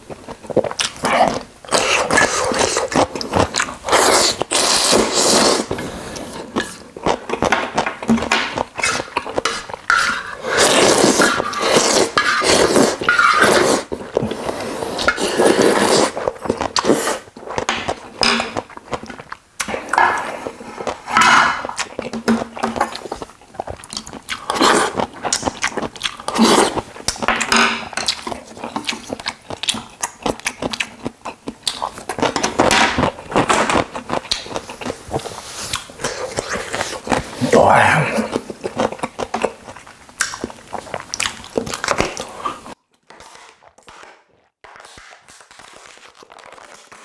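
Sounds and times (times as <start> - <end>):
chewing: 0.1 - 43.9
slurping noodles: 1.1 - 6.8, 8.8 - 17.3, 24.3 - 25.3, 26.1 - 26.9.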